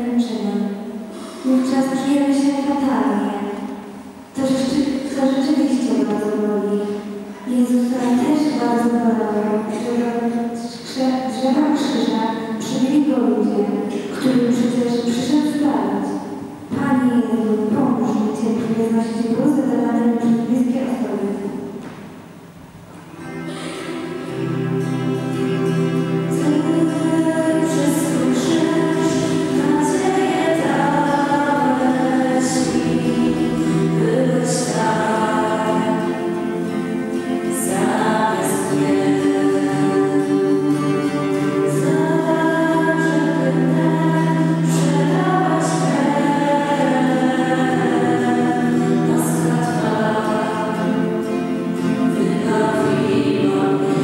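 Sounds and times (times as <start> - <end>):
low accompaniment chords: 15.6 - 54.0
choir singing a slow hymn: 23.8 - 54.0.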